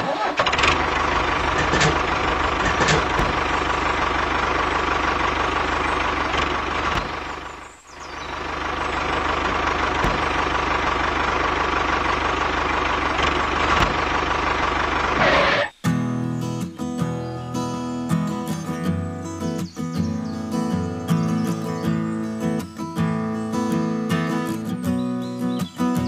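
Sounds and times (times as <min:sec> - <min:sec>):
model tractor engine drone: 0:00.0 - 0:15.8.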